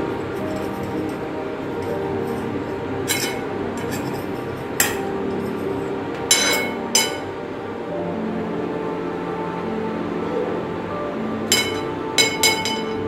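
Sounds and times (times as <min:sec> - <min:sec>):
background music: 0:00.0 - 0:13.0
knife clinking on ceramic plate: 0:06.3 - 0:07.3, 0:11.5 - 0:13.0.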